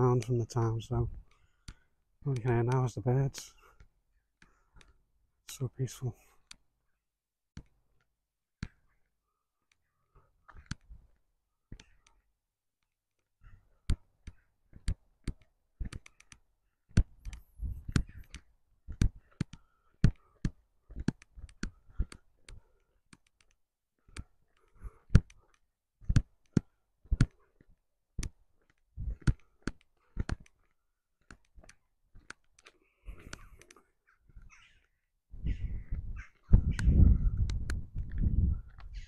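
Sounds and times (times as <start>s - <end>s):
footsteps on cobblestones: 26.0s - 33.3s, 37.8s - 39.0s.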